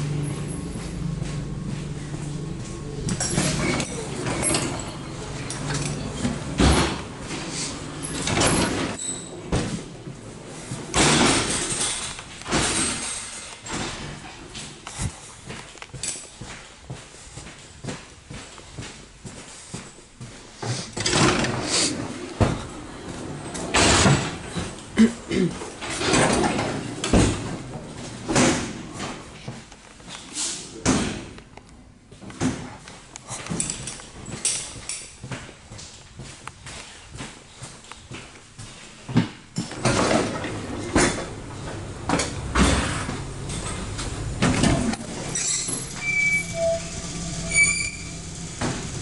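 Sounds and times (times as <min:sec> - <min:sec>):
sliding door rushing: 0:03.0 - 0:10.0, 0:21.0 - 0:24.8, 0:39.7 - 0:49.0.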